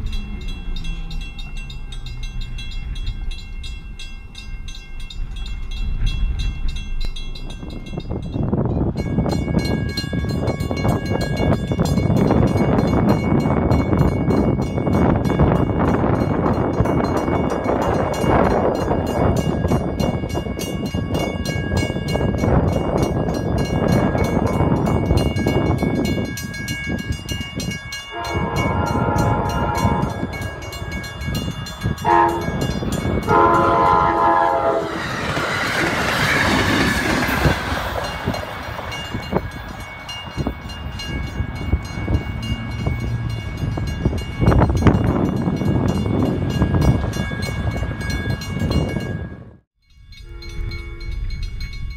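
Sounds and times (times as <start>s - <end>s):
crossing bells ringing: 0.0s - 51.9s
train rumbling past: 0.0s - 51.9s
wheels clacking on rails: 0.0s - 51.9s
train horn blasts: 28.1s - 30.8s, 32.0s - 35.1s, 50.2s - 51.3s.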